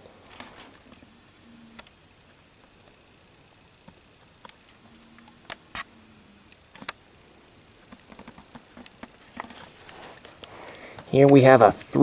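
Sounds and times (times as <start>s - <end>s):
faint high whine: 0.0s - 12.0s
handling clicks and taps: 7.8s - 9.7s.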